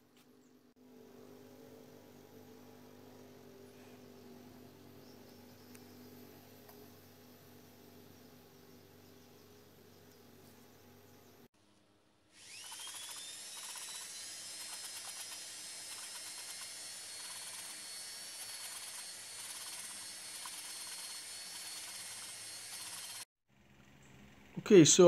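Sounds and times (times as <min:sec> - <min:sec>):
electric drill whining: 0:12.3 - 0:23.3.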